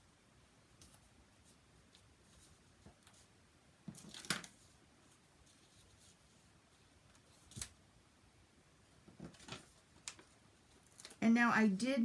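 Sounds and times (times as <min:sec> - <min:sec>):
paper rustling: 0:09.1 - 0:11.2.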